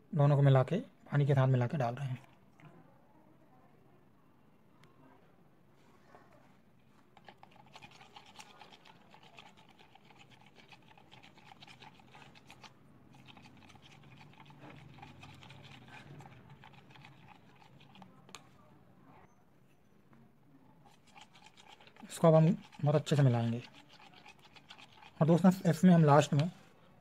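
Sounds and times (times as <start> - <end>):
spoon stirring in plastic cup: 6.8 - 18.6, 20.8 - 26.7.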